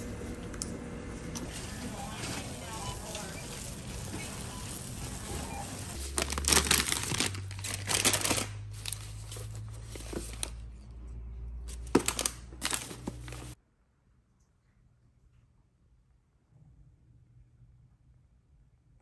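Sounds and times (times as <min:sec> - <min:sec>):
packaging and tote bag rustling: 0:01.4 - 0:10.6, 0:11.7 - 0:13.6.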